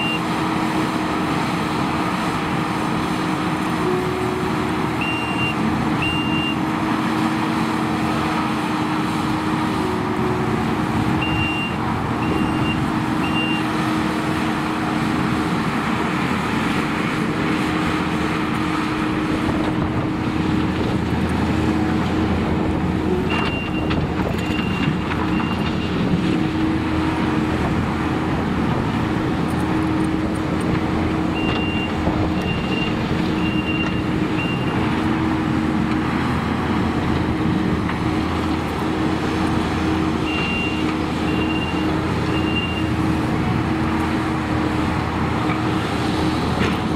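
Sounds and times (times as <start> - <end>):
reversing alarm beeping: 0.0 - 0.3, 5.0 - 6.6, 11.2 - 13.7, 23.3 - 25.9, 31.3 - 34.8, 40.2 - 42.9
diesel engine running: 0.0 - 46.9.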